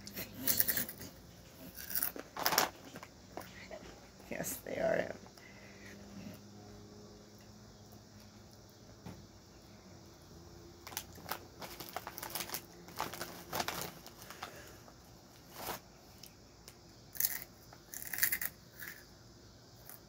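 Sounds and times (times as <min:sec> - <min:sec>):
chip crunching: 0:00.1 - 0:03.1, 0:10.9 - 0:14.8, 0:17.1 - 0:19.0
plastic chip bag rustling: 0:01.7 - 0:03.1, 0:10.8 - 0:15.9.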